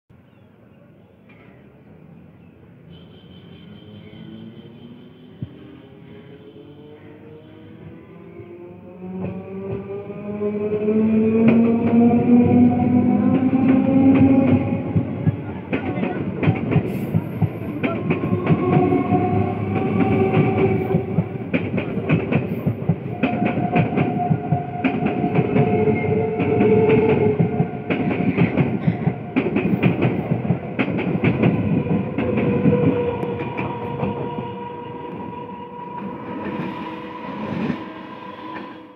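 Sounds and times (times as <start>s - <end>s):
train whine: 3.5s - 38.9s
train rumble: 7.4s - 38.9s
train wheels clicking over rail joints: 13.4s - 34.2s.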